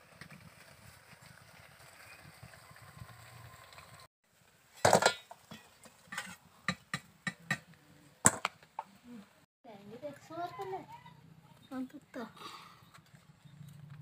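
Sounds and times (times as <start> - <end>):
metal clatter: 4.7 - 6.4
metal ladle scraping metal pot: 4.8 - 6.5.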